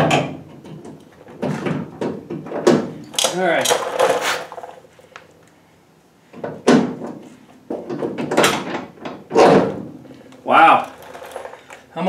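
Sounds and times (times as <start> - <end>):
metal scraping and clunking: 10.7 - 11.9.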